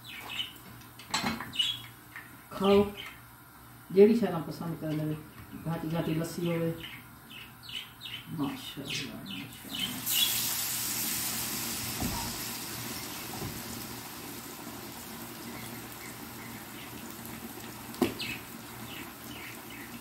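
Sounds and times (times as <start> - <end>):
food sizzling in hot oil: 9.7 - 20.0.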